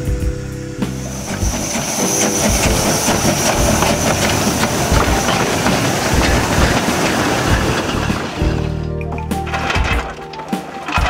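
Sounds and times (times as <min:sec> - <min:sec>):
steam hissing: 0:00.0 - 0:08.7
steam locomotive chuffing: 0:00.0 - 0:08.8
wheel clatter: 0:00.0 - 0:11.0.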